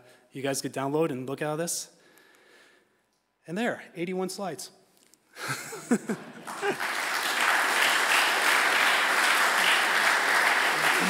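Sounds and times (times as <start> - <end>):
audience applauding: 6.3 - 11.0.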